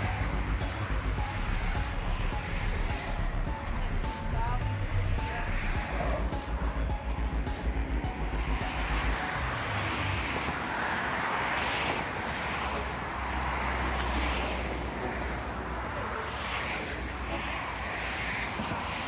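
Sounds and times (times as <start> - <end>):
passing road traffic: 0.0 - 19.0.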